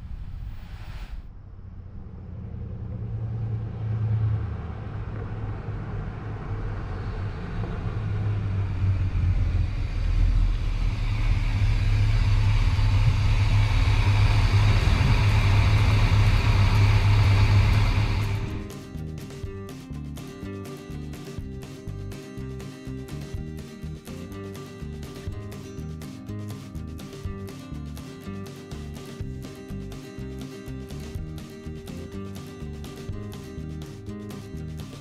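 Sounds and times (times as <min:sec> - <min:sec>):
pickup truck engine rumbling: 0:02.6 - 0:18.7.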